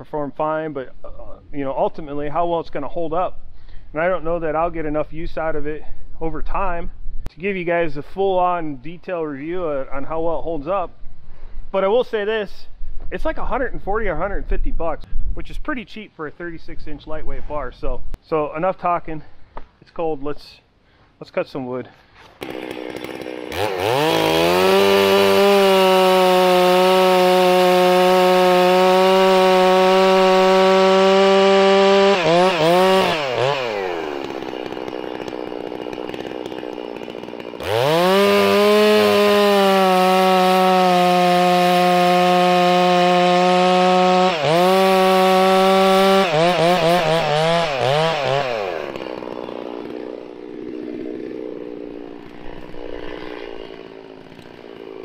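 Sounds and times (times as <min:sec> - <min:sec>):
chainsaw cutting log: 0:22.2 - 0:55.0.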